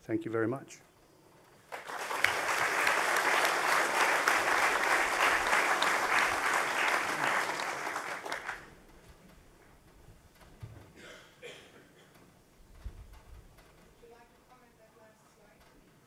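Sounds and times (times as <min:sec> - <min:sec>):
audience applauding: 0:01.6 - 0:08.8.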